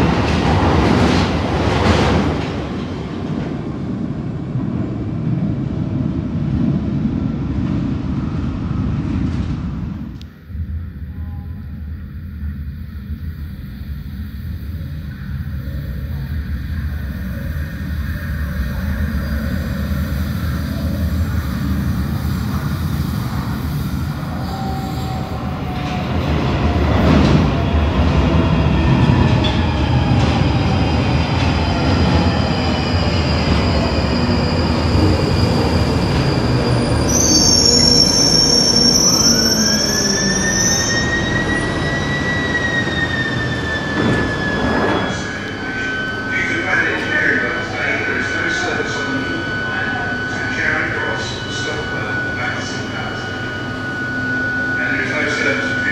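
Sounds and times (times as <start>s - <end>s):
train rumble: 0.0s - 55.9s
train wheel squeal: 17.5s - 26.7s, 31.7s - 55.9s.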